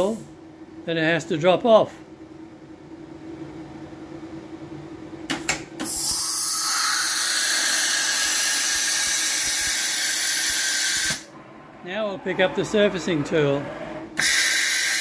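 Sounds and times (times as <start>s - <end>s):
compressed air hissing: 5.8s - 11.3s, 14.2s - 15.0s.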